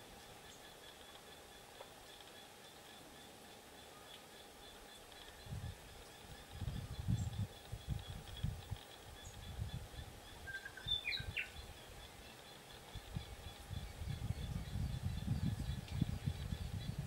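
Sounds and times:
bird chirping: 0:00.4 - 0:17.0
wind buffeting microphone: 0:05.4 - 0:12.2, 0:12.8 - 0:17.0.

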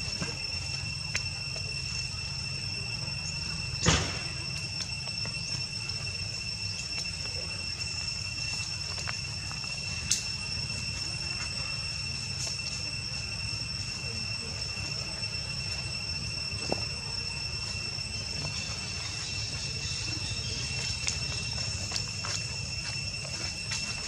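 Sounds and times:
high insect whine: 0:00.0 - 0:24.0.

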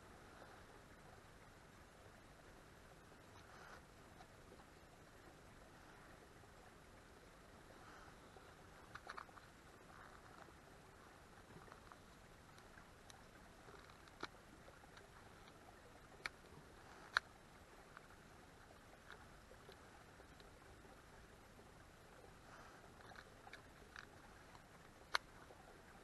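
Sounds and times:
faint hiss: 0:00.0 - 0:26.0
soft ticks: 0:08.4 - 0:20.9, 0:22.2 - 0:25.8.

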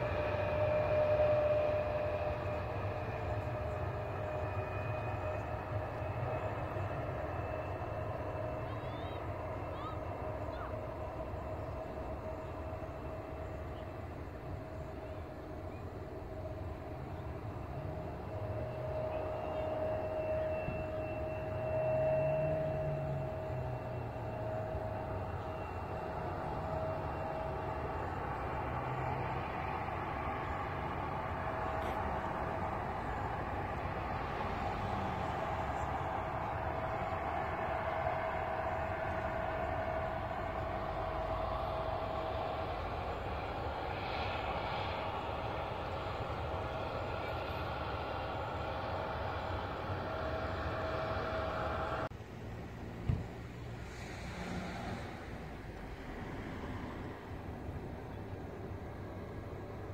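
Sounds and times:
jet engines rumbling and whining: 0:00.0 - 0:59.9.

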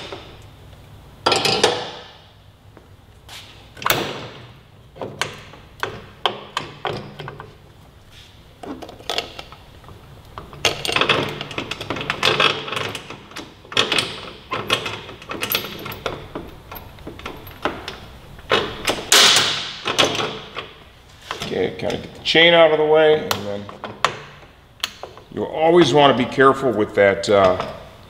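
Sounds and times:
metallic chain clicks and rattles: 0:10.5 - 0:17.8.

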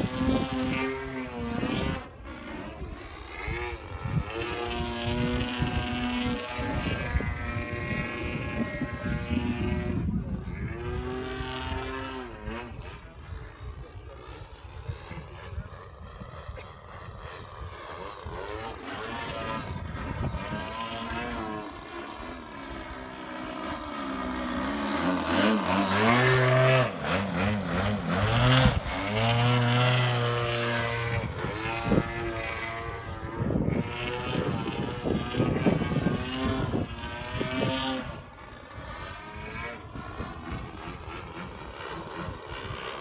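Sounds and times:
model airplane engine and propeller: 0:00.0 - 0:43.0.

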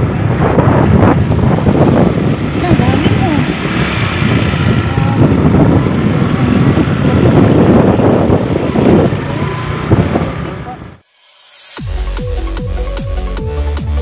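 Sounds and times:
wind noise on microphone: 0:00.0 - 0:11.0
vehicle running: 0:00.0 - 0:11.1.

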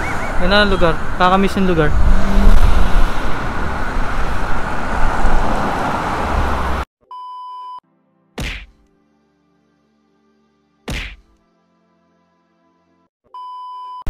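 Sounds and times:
road traffic rumble: 0:00.0 - 0:06.9
sharp thunk: 0:08.4 - 0:08.8, 0:10.9 - 0:11.3
electronic beep: 0:13.4 - 0:14.0.

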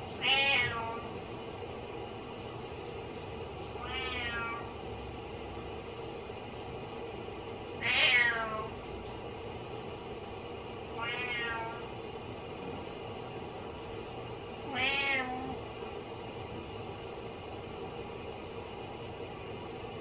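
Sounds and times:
cat meowing: 0:00.2 - 0:01.1, 0:03.8 - 0:04.7, 0:07.8 - 0:08.7, 0:11.0 - 0:11.9, 0:14.7 - 0:15.6.

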